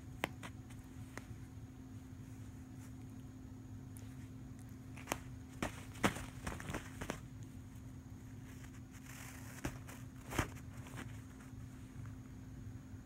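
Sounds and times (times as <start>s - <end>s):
steady low hum: 0.0s - 13.0s
cat claws scratching duvet: 3.9s - 12.4s.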